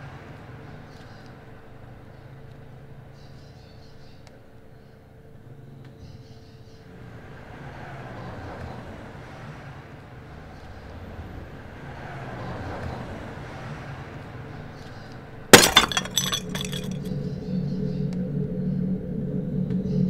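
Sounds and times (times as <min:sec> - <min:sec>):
flower pot smashing on paving: 0:15.6 - 0:17.1
shards scattering: 0:15.6 - 0:17.1.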